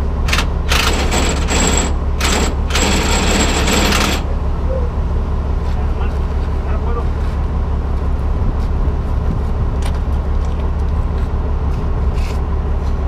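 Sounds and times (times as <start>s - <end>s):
diesel engine idling: 0.0s - 13.0s
impact wrench hammering: 0.3s - 4.3s.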